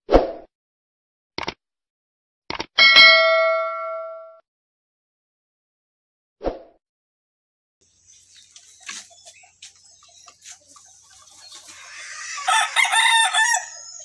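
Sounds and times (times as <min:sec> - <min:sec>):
roosters clucking: 0:07.9 - 0:14.0
rooster crowing loudly: 0:11.8 - 0:14.0.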